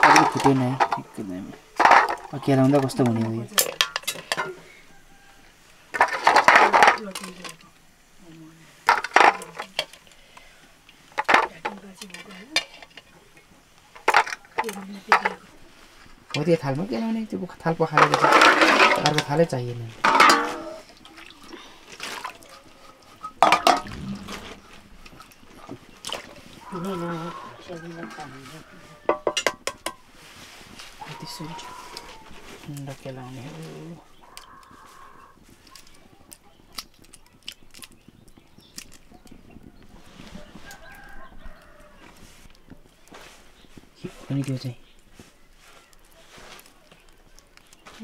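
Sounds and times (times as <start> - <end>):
water splashing and dripping: 19.0 - 27.8
chickens clucking: 20.0 - 29.5.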